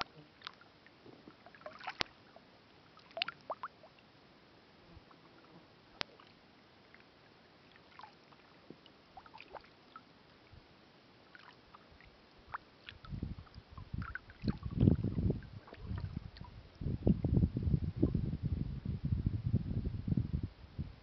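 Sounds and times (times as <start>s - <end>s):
water drips: 1.4s - 2.2s, 3.0s - 4.0s, 11.3s - 16.8s
small ticks: 1.8s - 2.2s
low rumbling bursts: 14.6s - 21.0s.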